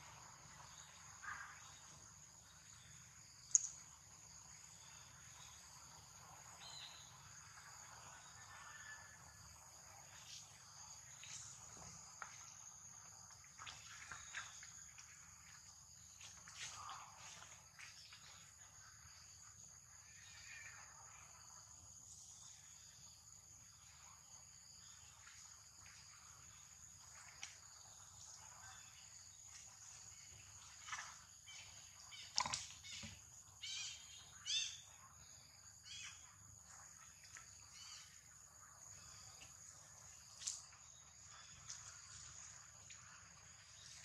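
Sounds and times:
high-pitched insect chorus: 0:00.0 - 0:44.0.

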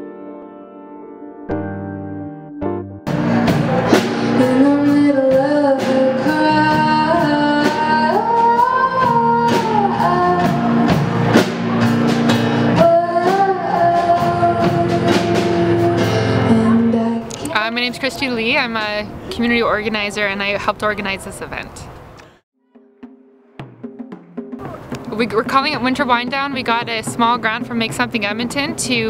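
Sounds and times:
guitar: 0:00.0 - 0:19.3
woman singing: 0:04.4 - 0:11.0, 0:12.7 - 0:18.6
strummed beats: 0:22.6 - 0:29.0.

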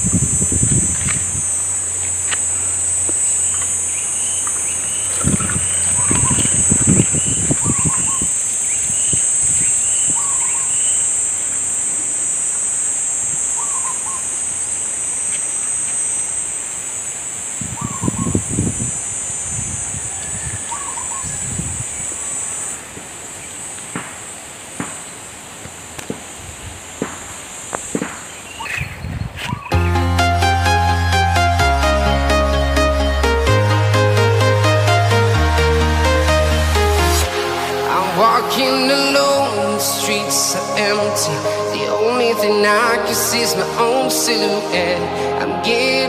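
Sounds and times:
footsteps on dirt path: 0:00.0 - 0:08.2, 0:24.8 - 0:26.4, 0:27.0 - 0:29.7
high-pitched insect drone: 0:00.0 - 0:25.3, 0:27.2 - 0:46.0.

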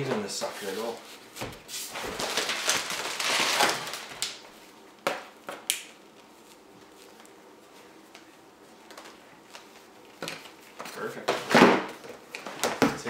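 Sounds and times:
plastic packing crinkling: 0:01.9 - 0:04.5.

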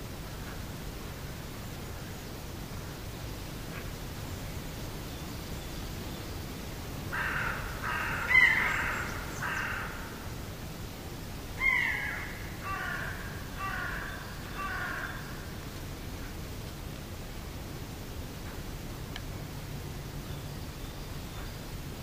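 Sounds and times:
crow cawing: 0:07.1 - 0:10.2, 0:11.6 - 0:15.4.

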